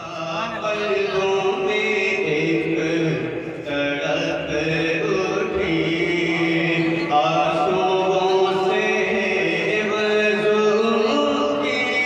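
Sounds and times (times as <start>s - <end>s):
man singing into a microphone: 0.0s - 12.0s.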